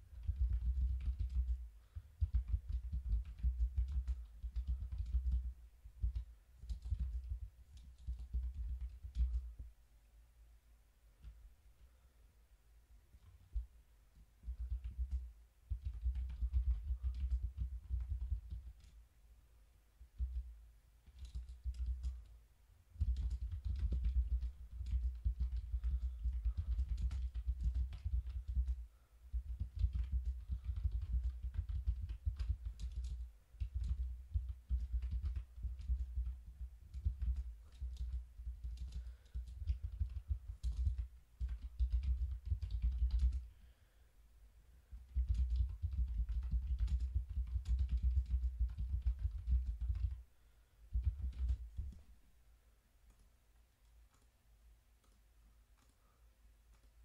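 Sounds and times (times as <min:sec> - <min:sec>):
typing on keyboard: 0:00.0 - 0:09.6, 0:14.4 - 0:19.0, 0:20.1 - 0:22.3, 0:23.0 - 0:43.5, 0:44.9 - 0:50.2, 0:50.9 - 0:52.1.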